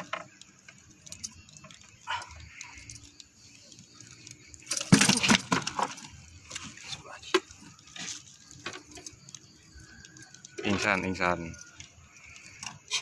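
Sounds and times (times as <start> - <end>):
fish thrashing on wooden floor: 4.7 - 6.2.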